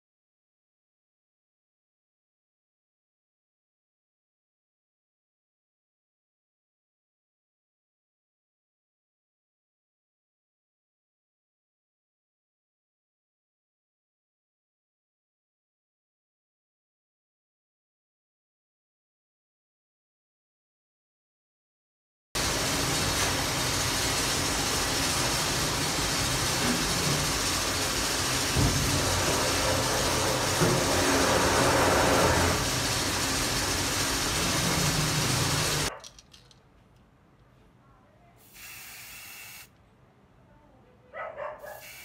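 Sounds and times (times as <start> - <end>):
loud steady hiss: 22.4 - 35.9, 38.4 - 39.7, 41.8 - 42.0
aerosol paint can spray: 38.4 - 39.7, 41.7 - 42.0.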